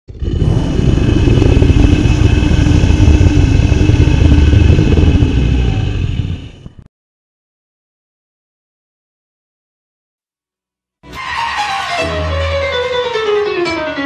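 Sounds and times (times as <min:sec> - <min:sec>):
loud deep rumbling: 0:00.1 - 0:06.9.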